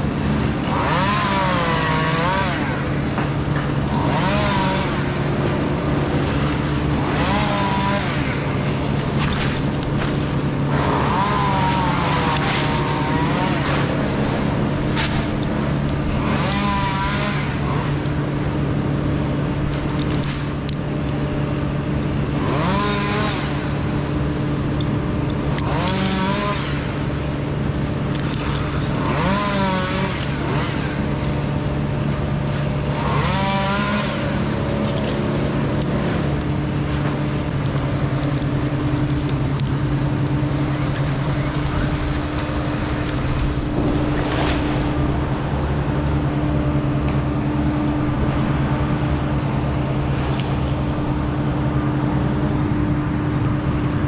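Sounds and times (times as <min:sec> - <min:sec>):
steady engine drone: 0:00.0 - 0:54.0.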